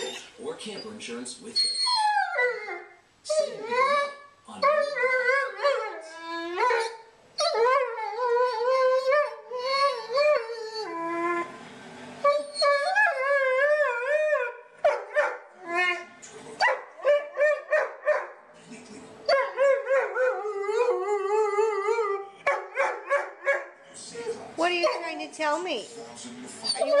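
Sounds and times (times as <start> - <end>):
dog yipping: 0.0 - 1.0, 1.6 - 11.5, 12.2 - 18.4, 22.0 - 25.2, 26.6 - 27.0
dog howling: 1.8 - 11.6, 12.2 - 18.2, 19.3 - 25.0.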